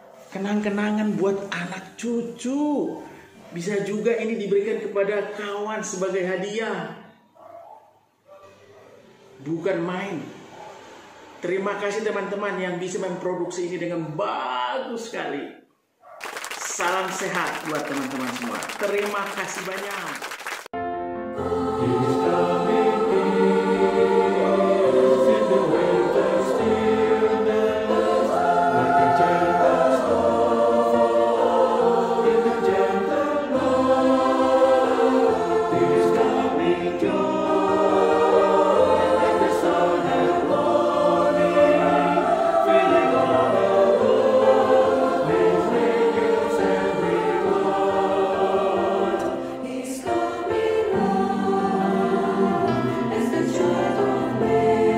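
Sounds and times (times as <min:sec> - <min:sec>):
church choir singing: 0:20.8 - 0:54.9.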